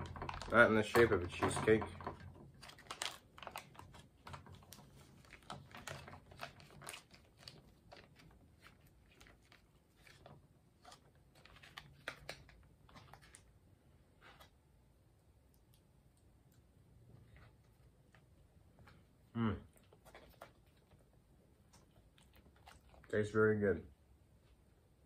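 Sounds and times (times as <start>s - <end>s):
food pouch crinkling: 2.4s - 13.5s.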